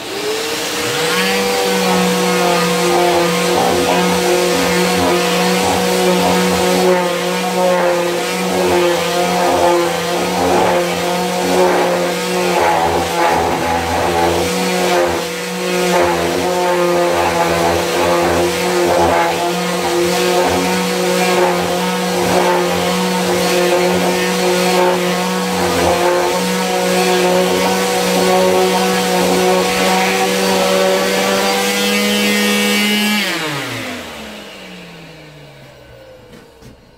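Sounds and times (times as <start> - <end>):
sander pad rubbing on wood: 0.0 - 34.2
detail sander running: 0.0 - 36.9.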